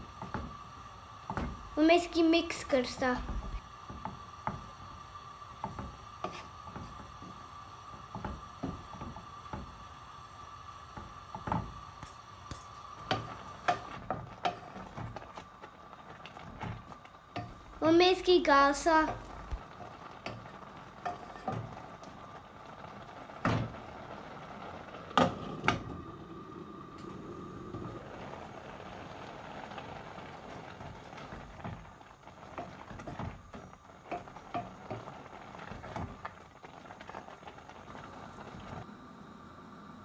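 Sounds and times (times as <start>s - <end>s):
pumpkin simmering and bubbling: 0.0s - 40.0s
spatula stirring and scraping: 5.6s - 7.0s, 13.0s - 17.8s, 18.9s - 21.8s.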